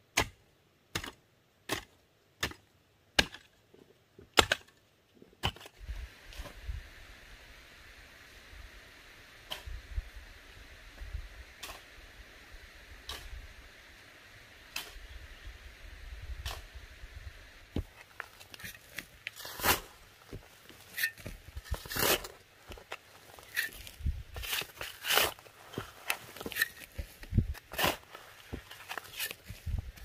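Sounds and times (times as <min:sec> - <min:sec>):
hoe chopping dry soil: 0:00.1 - 0:02.6, 0:03.2 - 0:03.5, 0:04.3 - 0:04.8, 0:05.4 - 0:05.8, 0:09.5 - 0:09.8, 0:11.6 - 0:12.0, 0:13.0 - 0:13.4, 0:14.7 - 0:15.1, 0:16.4 - 0:16.7, 0:17.7 - 0:30.0.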